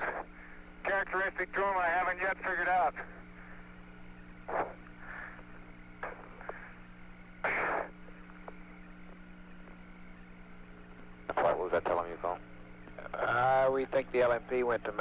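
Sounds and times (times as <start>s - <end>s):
short radio noise hisses: 0.0s - 0.8s, 4.4s - 8.6s
steady electrical hum: 0.0s - 15.0s.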